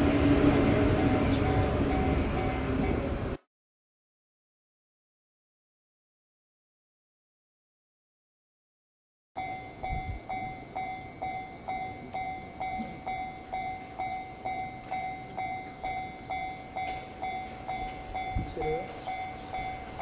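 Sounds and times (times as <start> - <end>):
level crossing alarm ringing: 0.1 - 3.2, 9.4 - 20.0.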